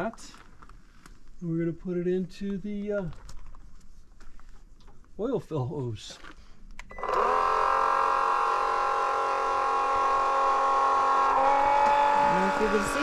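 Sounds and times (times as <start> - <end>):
electric oil pump whining: 6.8 - 13.0.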